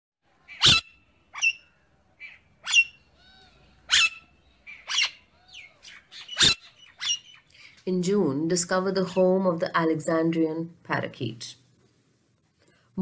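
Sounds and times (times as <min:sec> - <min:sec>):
soft parakeet calls: 0:00.4 - 0:07.8
parakeet screeching: 0:00.5 - 0:07.4.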